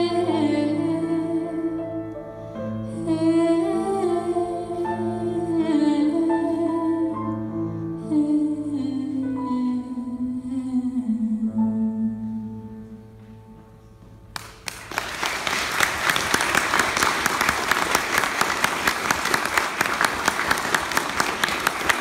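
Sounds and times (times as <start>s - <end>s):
audience applause: 14.4s - 22.0s.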